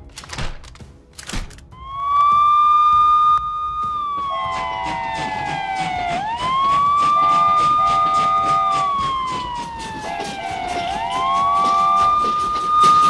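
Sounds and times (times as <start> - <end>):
wailing siren: 1.7 - 13.0.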